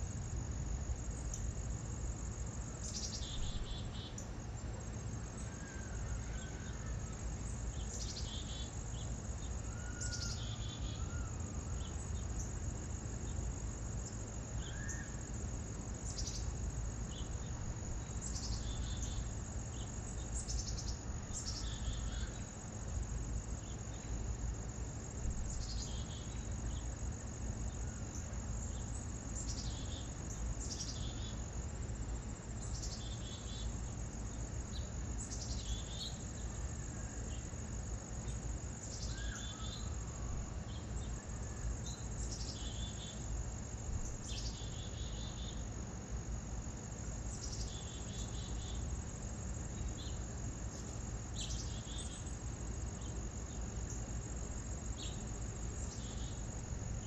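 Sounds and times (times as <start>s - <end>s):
crickets trilling: 0.0s - 57.0s
songbirds calling: 1.0s - 57.0s.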